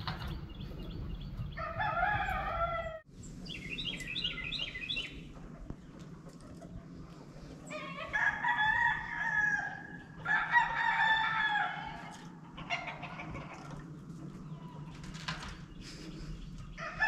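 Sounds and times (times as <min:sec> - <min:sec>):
rooster crowing: 0:01.5 - 0:03.0, 0:07.8 - 0:12.2, 0:16.8 - 0:17.0.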